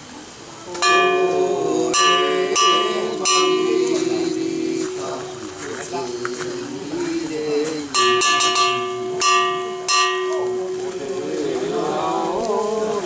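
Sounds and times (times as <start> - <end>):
metal bell ringing: 0.8 - 6.2, 7.9 - 11.8
men chanting: 0.8 - 13.0.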